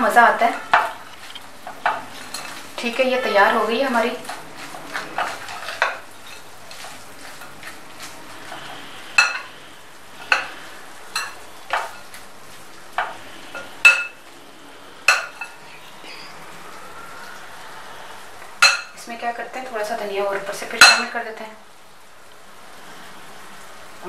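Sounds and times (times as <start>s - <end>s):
puffed rice mix rustling: 3.8s - 13.5s.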